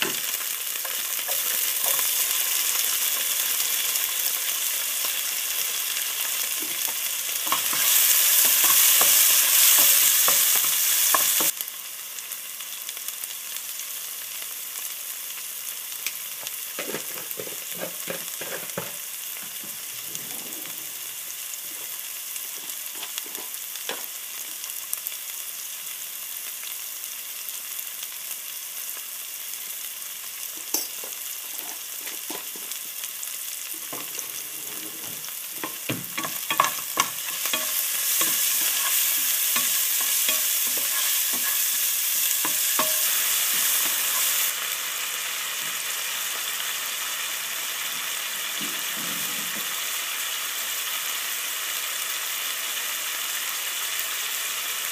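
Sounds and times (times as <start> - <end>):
food sizzling in oil: 0.0 - 54.9
spatula scraping and knocking pan: 6.5 - 11.5, 16.8 - 19.8, 33.8 - 44.4.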